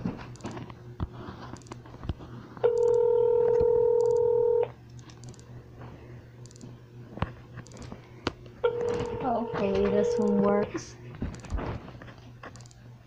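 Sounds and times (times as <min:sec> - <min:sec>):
telephone ringback tone: 0:02.6 - 0:04.7, 0:08.6 - 0:10.7.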